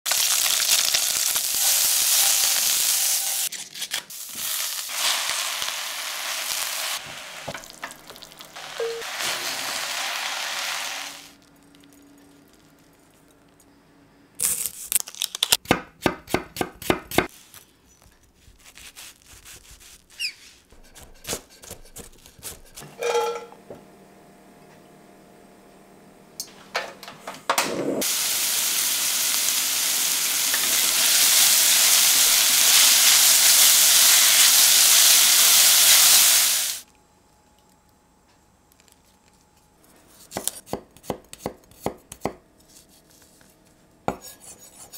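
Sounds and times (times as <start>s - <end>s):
tofu sizzling in a frying pan: 0.1s - 3.5s, 4.1s - 11.3s, 28.0s - 36.8s.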